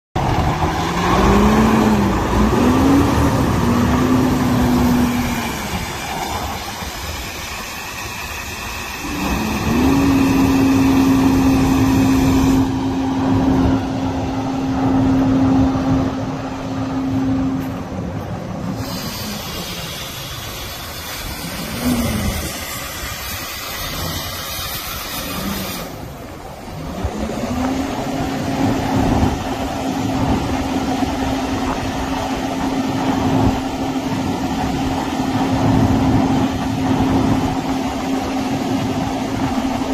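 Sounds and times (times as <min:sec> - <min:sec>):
engine humming and revving: 0:00.2 - 0:39.9
wind rumble on microphone: 0:00.2 - 0:39.9.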